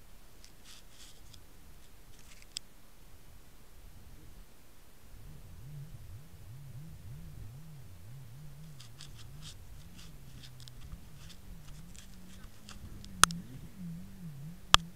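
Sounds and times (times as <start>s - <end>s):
muffled jet ski engine: 5.1s - 14.9s
light ticks: 8.5s - 14.9s.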